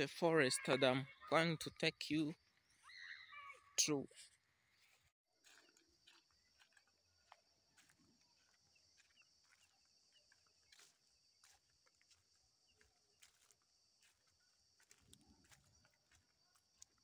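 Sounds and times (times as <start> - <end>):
footsteps on dry leaves: 4.2 - 17.0.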